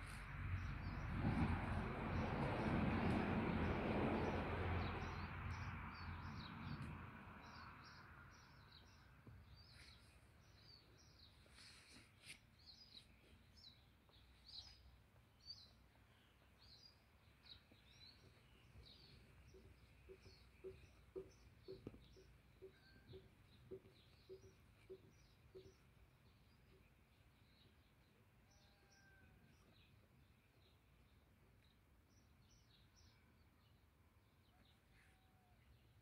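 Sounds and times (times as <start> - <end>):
car passing: 0.0 - 9.0
small bird chirping: 16.3 - 26.9.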